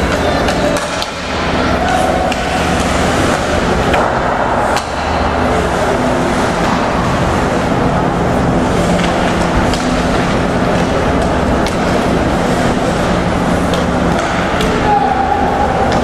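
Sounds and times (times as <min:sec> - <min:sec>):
crowd and rink noise: 0:00.0 - 0:16.0.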